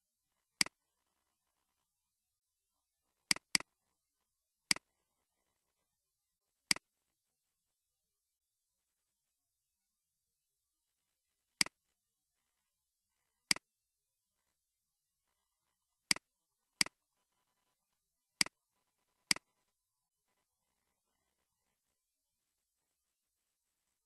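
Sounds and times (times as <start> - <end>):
computer mouse clicks: 3.3 - 3.7, 4.7 - 4.9, 19.3 - 19.5.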